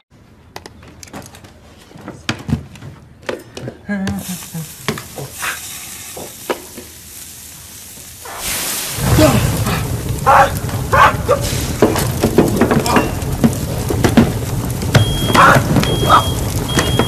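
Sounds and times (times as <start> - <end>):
food sizzling on a grill: 4.2 - 17.0.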